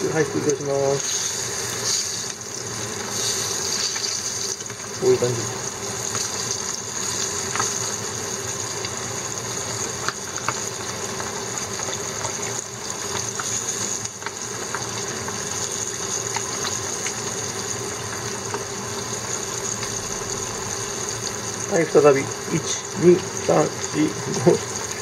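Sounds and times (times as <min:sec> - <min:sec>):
fish deep-frying in oil: 0:00.0 - 0:25.0
small pops and crackles: 0:09.9 - 0:17.2.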